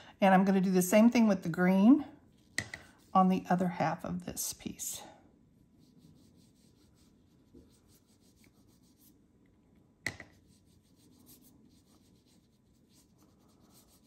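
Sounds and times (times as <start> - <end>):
brush bristles scratching on card: 2.3 - 3.5, 5.7 - 9.2, 10.3 - 14.0.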